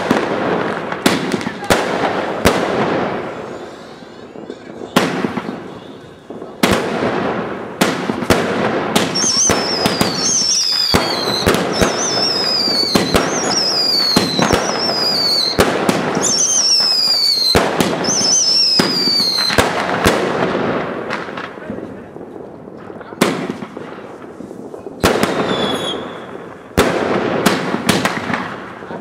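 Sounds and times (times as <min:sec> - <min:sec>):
fireworks bangs and crackle: 0:00.0 - 0:29.0
firework whistle falling in pitch: 0:09.2 - 0:15.6, 0:16.2 - 0:19.6.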